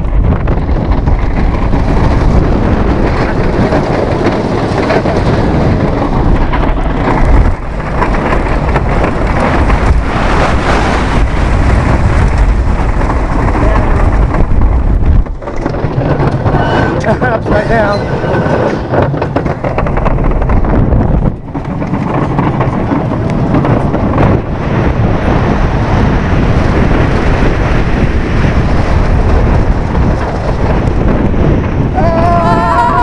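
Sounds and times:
roller coaster rumble and rattle: 0.0 - 33.0
wind buffeting microphone: 0.0 - 33.0
riders screaming: 31.9 - 33.0.

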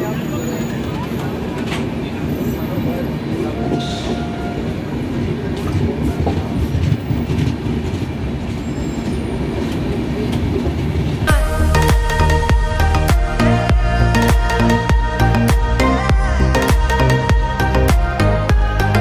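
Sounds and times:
train wheels rumbling on track: 0.0 - 11.3
music with a beat: 11.3 - 19.0.

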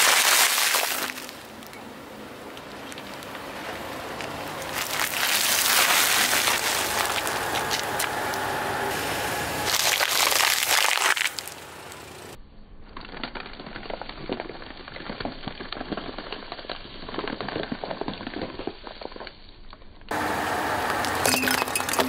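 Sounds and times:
plastic tray crackling under tyre: 0.0 - 8.6, 9.6 - 12.0
loud steady noise: 5.6 - 10.4.

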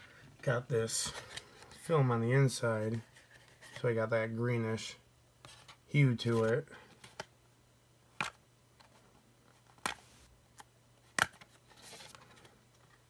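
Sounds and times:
soft rustle: 2.8 - 4.0.

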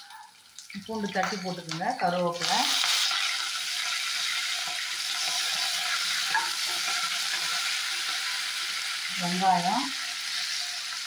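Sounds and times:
hot oil sizzling: 0.0 - 11.0.

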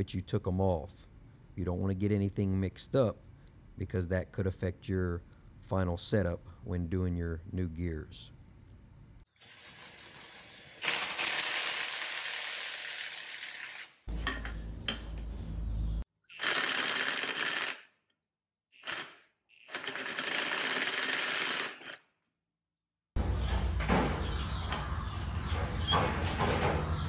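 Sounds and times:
mechanical tool running: 9.4 - 14.1, 16.3 - 18.0, 18.7 - 22.1.

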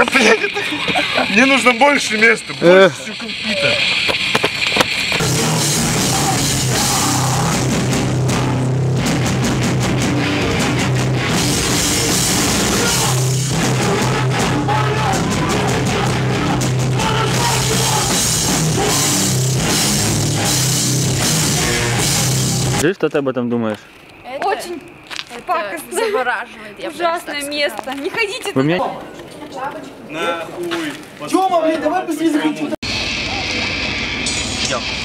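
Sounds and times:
heavy rock music: 1.0 - 22.8, 32.8 - 35.0.

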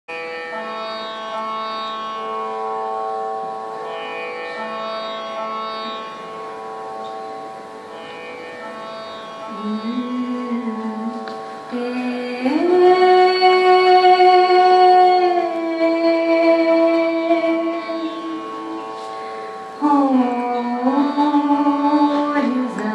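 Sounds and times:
sustained accompaniment tones: 0.2 - 22.9
woman singing: 9.5 - 19.2, 19.8 - 22.9.

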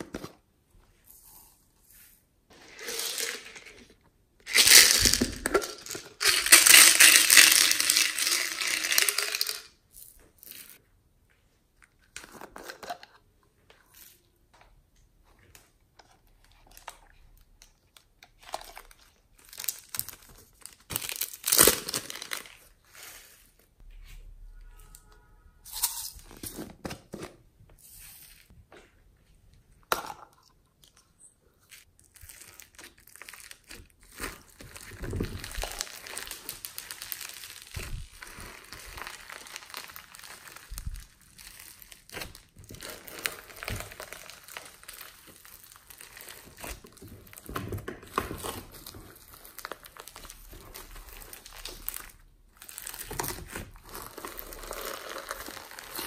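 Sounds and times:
slime crackling and squishing: 31.6 - 56.0.

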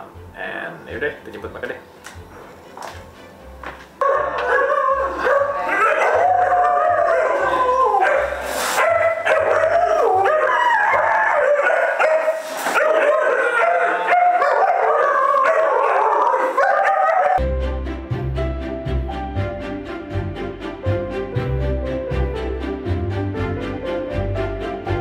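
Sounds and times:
puppies howling: 4.0 - 17.4.

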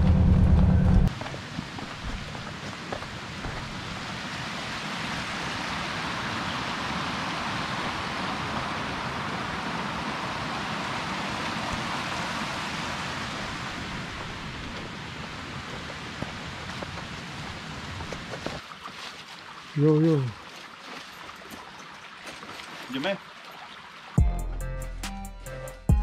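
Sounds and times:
rain-like hiss: 1.2 - 18.6.

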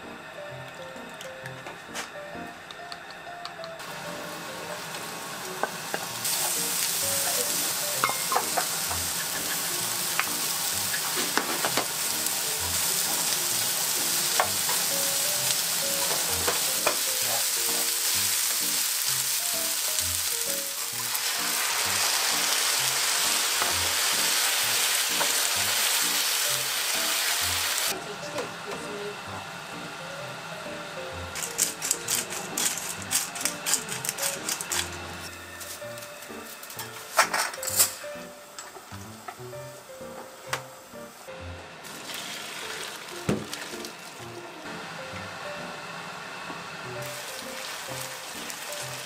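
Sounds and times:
food sizzling in a frying pan: 3.8 - 28.0, 41.8 - 45.8, 46.6 - 49.0.

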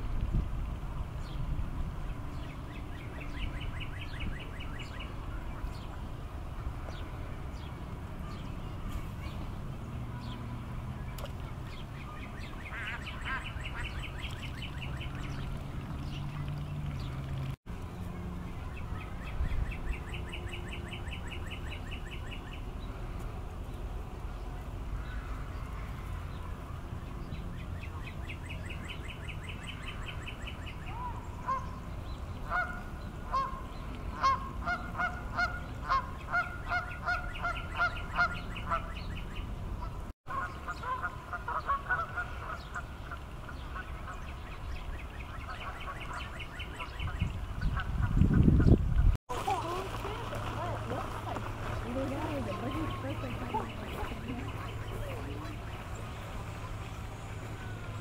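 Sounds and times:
high trilling birdsong: 6.9 - 23.0, 25.0 - 49.1
geese honking: 12.4 - 15.6, 30.9 - 31.8, 32.4 - 39.1, 39.8 - 44.3, 50.1 - 58.0.

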